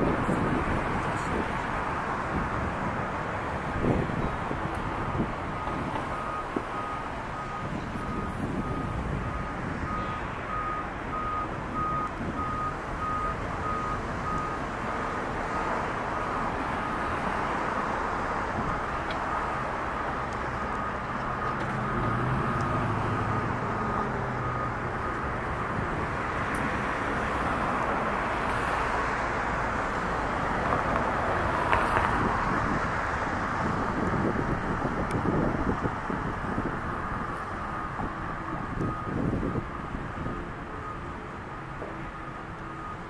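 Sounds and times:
urban traffic noise: 0.0s - 43.0s
vehicle engine rumbling: 0.0s - 43.0s
reversing beeper: 5.6s - 14.6s, 20.6s - 25.4s.

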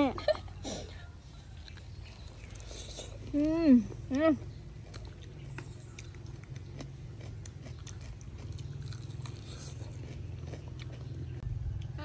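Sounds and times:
steady low hum: 0.0s - 12.0s
crunching fried chicken: 4.8s - 12.0s.

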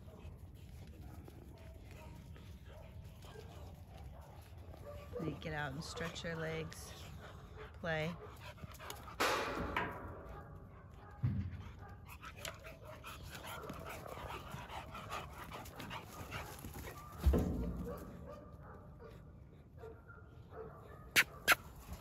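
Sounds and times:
puppies panting and whimpering: 0.0s - 9.5s, 11.7s - 17.5s.

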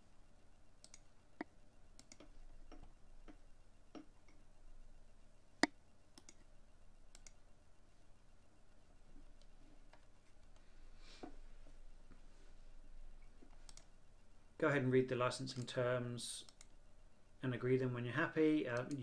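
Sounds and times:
faint ticks and clicks: 0.6s - 4.6s, 5.5s - 7.5s, 9.0s - 12.2s, 13.2s - 14.4s, 15.4s - 16.8s, 18.7s - 19.0s
computer mouse click: 0.8s - 4.4s, 5.6s - 6.5s, 7.1s - 7.4s, 13.4s - 13.9s, 16.4s - 16.7s, 18.8s - 19.0s.

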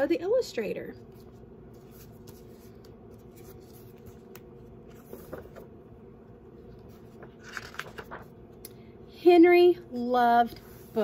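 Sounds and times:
steady low hum: 0.0s - 11.0s
book pages rustling: 1.0s - 8.6s.

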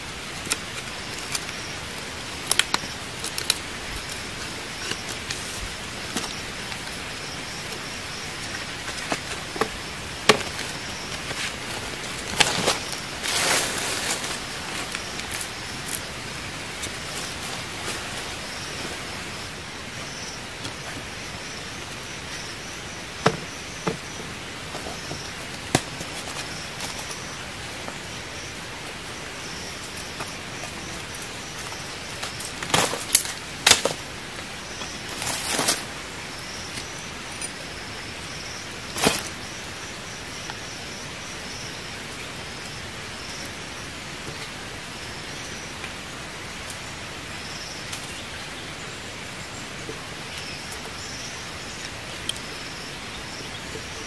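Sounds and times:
forest hiss: 0.0s - 54.0s
pulsing insect call: 0.5s - 54.0s
bamboo knocking and cracking: 8.9s - 11.4s, 23.2s - 24.1s, 24.7s - 27.1s, 32.3s - 34.1s.

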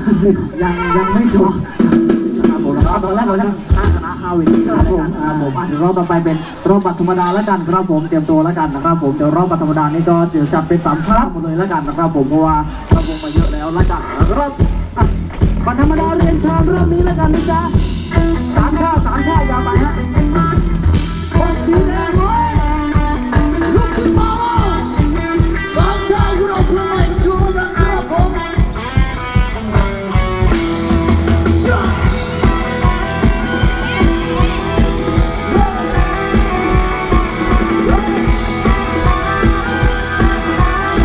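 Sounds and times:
live band dance music with singing: 0.0s - 9.4s, 12.6s - 41.0s.

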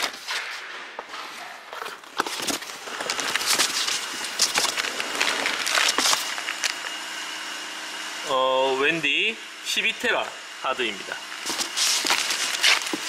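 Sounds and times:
cardboard packaging rustling: 1.7s - 6.9s, 11.4s - 13.0s
faint high whine: 3.0s - 13.0s.

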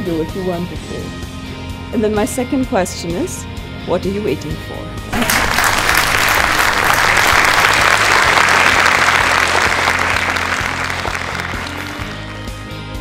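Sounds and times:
soft background music: 0.0s - 13.0s
audience applauding: 5.1s - 12.6s.

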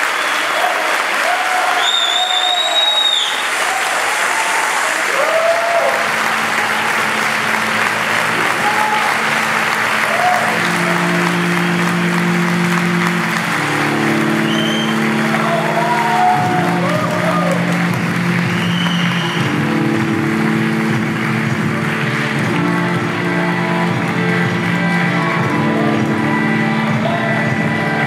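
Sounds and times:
audience applauding: 0.0s - 28.0s
people cheering: 0.0s - 28.0s
high whistle: 1.7s - 3.8s, 14.4s - 15.2s, 18.5s - 19.5s
music of slow held chords: 5.9s - 28.0s.

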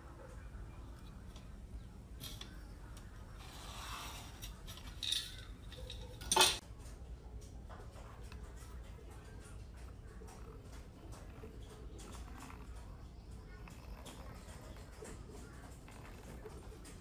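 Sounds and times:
light rubbing and scraping: 0.8s - 6.6s
metal tools clattering: 4.3s - 6.6s.

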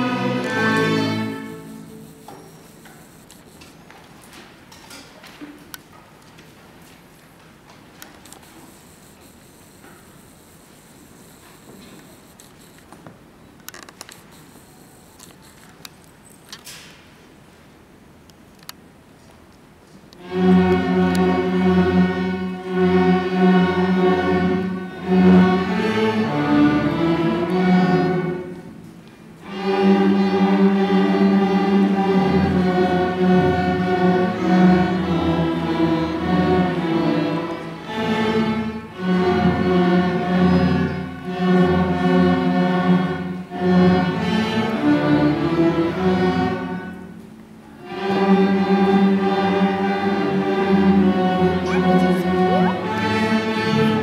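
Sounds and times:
string orchestra playing: 0.0s - 2.1s, 20.2s - 47.1s, 47.8s - 54.0s.

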